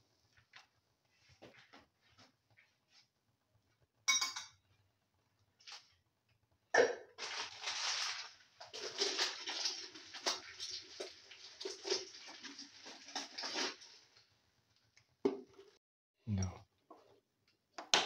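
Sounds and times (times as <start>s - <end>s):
metal clinking on a pan: 4.1s - 4.6s.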